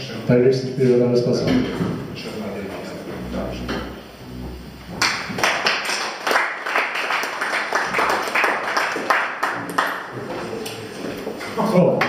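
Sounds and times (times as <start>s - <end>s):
small audience clapping: 4.9s - 11.6s.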